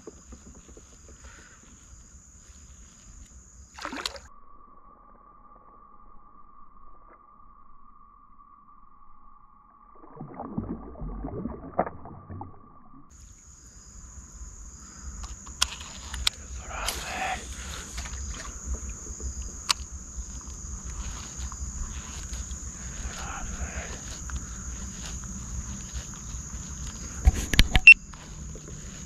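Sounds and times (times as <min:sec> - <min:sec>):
high insect buzz: 0:00.0 - 0:09.8, 0:13.1 - 0:29.0
fish splashing in water: 0:03.8 - 0:04.3, 0:10.0 - 0:12.4
sharp clicks: 0:15.2 - 0:17.0
thin steady tone: 0:16.3 - 0:29.0.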